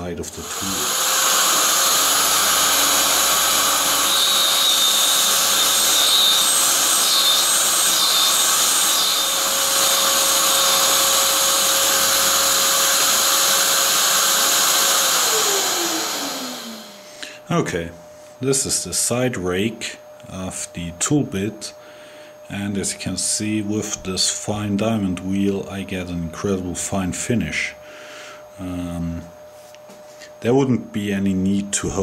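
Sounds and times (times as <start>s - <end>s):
grinder wheel grinding: 0.2s - 17.0s
grinder motor spinning down: 0.2s - 17.1s.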